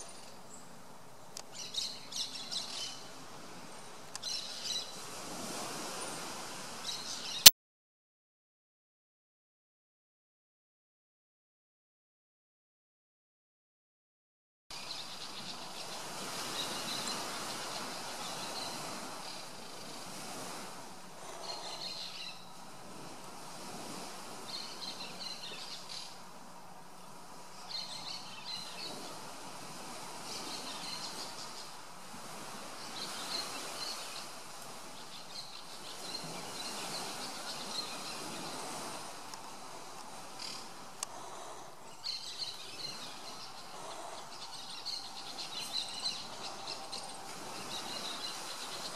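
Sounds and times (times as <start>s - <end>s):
steady hiss: 14.8s - 48.9s
bird calls: 21.3s - 22.6s, 40.2s - 48.9s.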